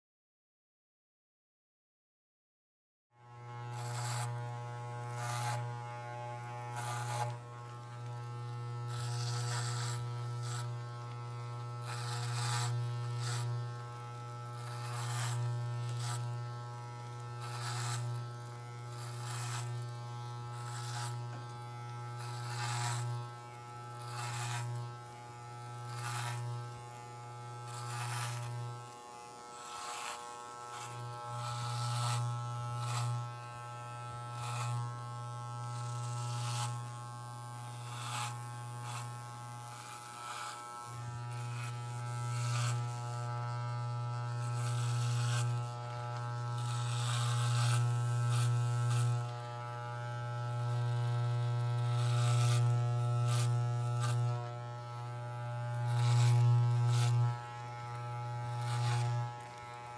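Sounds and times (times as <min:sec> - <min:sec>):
electric razor buzzing: 0:03.2 - 0:59.9.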